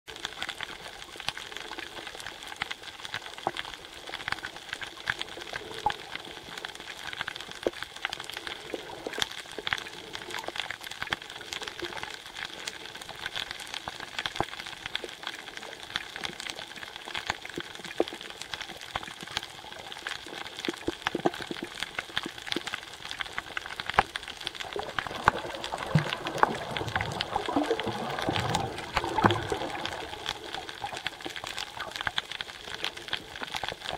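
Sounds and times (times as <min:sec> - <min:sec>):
underwater water swirl: 0:00.2 - 0:33.9
snapping shrimp crackle: 0:07.1 - 0:33.9.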